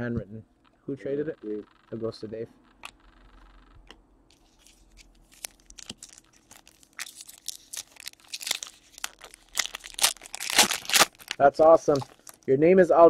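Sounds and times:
foil pack crinkling and tearing: 4.4 - 12.5.

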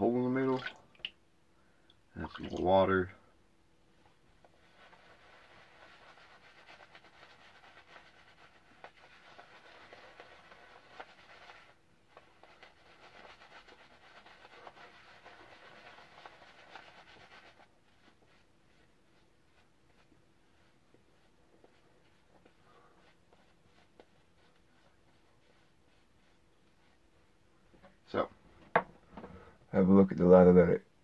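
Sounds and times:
shaving brush swishing lather: 4.2 - 27.4.

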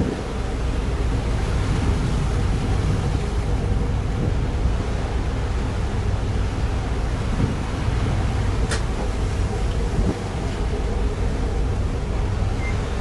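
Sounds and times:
low steady rumble: 0.0 - 13.0
rough sea rushing: 0.0 - 13.0
wind buffeting microphone: 0.0 - 13.0.

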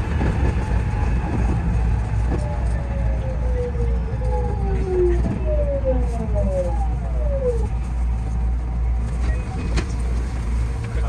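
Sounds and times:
train low rumble: 0.0 - 11.0.

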